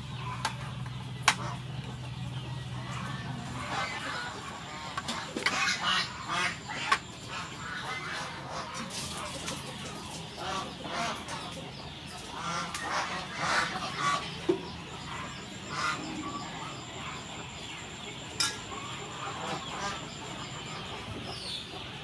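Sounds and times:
poultry honking: 2.4s - 9.4s, 10.4s - 11.6s, 12.3s - 17.2s, 18.4s - 21.1s.

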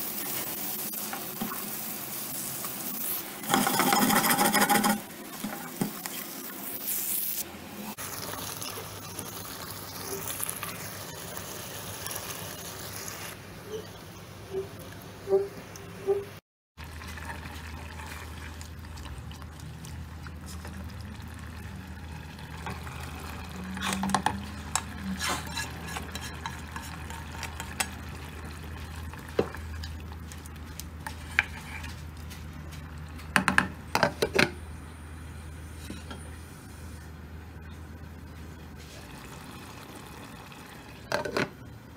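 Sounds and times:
ladle stirring gravy: 22.6s - 32.6s.

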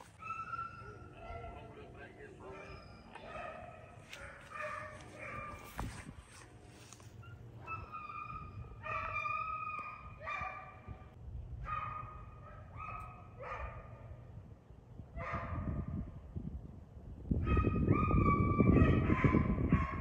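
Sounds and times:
hounds baying: 0.0s - 6.0s, 6.9s - 10.9s.

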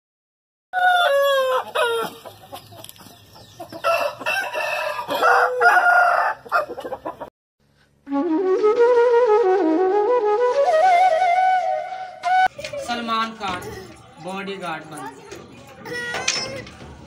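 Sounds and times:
rooster crowing and clucking: 0.8s - 7.3s.

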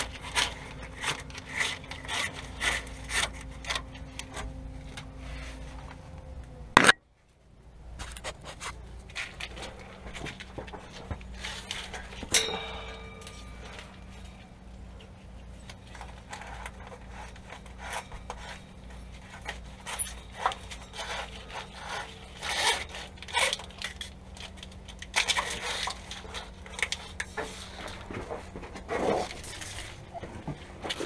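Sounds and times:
gloved hands handling cable: 8.0s - 31.0s.

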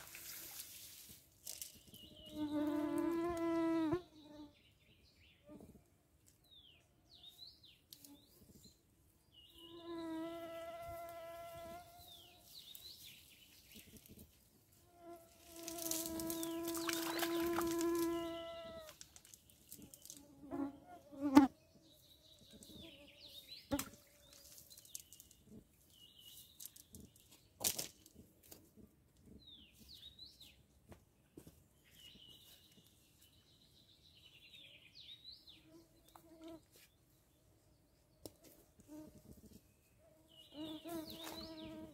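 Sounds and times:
flying insect buzzing: 15.0s - 19.0s
small birds chirping: 15.6s - 27.6s, 31.3s - 41.9s.

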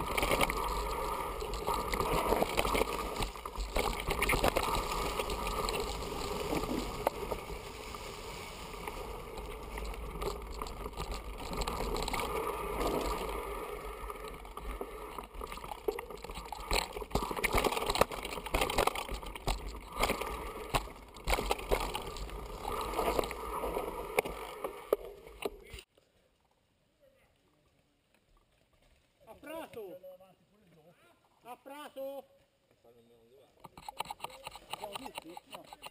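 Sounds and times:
tyre and wind rush: 0.0s - 15.7s
bike rattling over stones: 0.0s - 25.7s, 33.7s - 35.9s.

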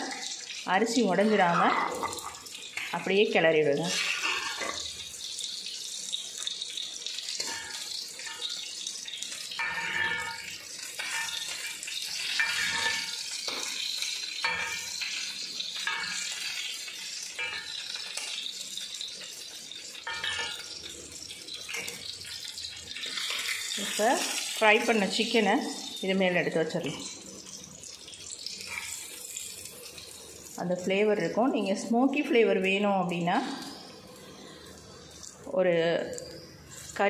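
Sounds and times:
rice simmering bubbling hiss: 0.0s - 37.0s
metal spatula scraping pan: 3.8s - 5.5s, 7.2s - 19.4s, 20.0s - 20.8s.

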